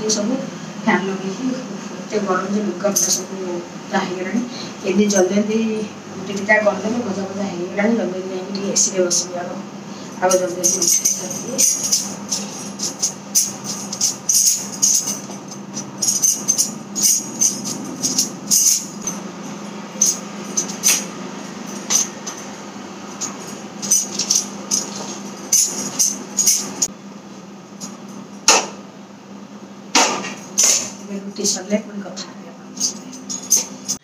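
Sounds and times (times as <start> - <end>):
steady low hum: 0.0 - 34.0
bangles jingling: 2.8 - 3.3, 10.1 - 26.9, 30.2 - 31.8, 32.7 - 34.0
utensils knocking: 10.2 - 26.9, 28.5 - 28.8, 30.0 - 31.2.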